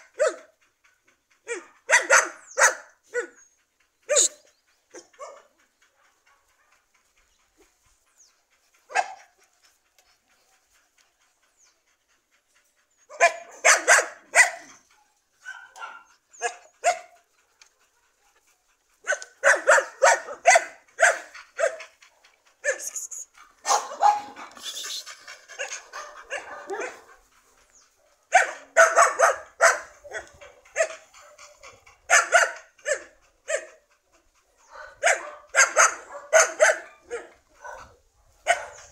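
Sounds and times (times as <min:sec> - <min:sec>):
dog barking: 0:00.0 - 0:00.5, 0:01.5 - 0:03.4, 0:04.1 - 0:06.8, 0:08.9 - 0:09.3, 0:13.1 - 0:14.7, 0:15.4 - 0:17.2, 0:19.0 - 0:21.9, 0:22.6 - 0:23.0, 0:23.6 - 0:24.6, 0:25.6 - 0:27.2, 0:28.3 - 0:33.8, 0:34.6 - 0:38.9.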